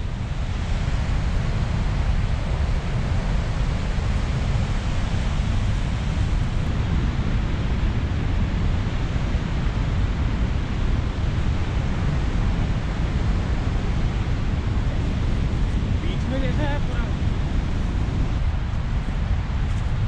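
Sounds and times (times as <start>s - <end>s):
waterfall roaring: 0.0s - 20.0s
wind buffeting microphone: 0.0s - 20.0s.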